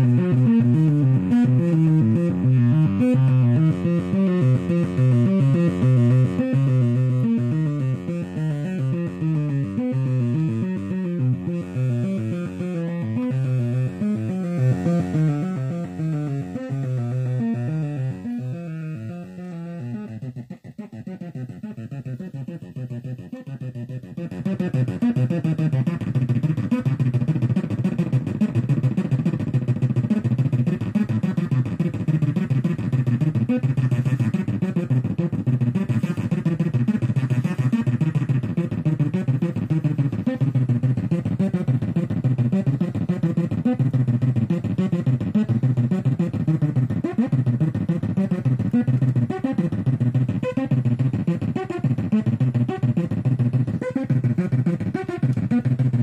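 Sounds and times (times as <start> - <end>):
distorted pulsing synthesizer tones: 0.0 - 56.0.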